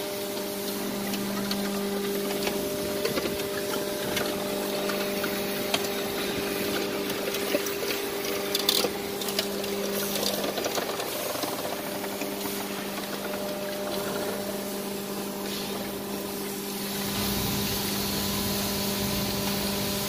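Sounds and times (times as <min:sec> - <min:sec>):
hydraulic pump humming: 0:00.0 - 0:20.0
hydraulic hiss: 0:08.0 - 0:20.0.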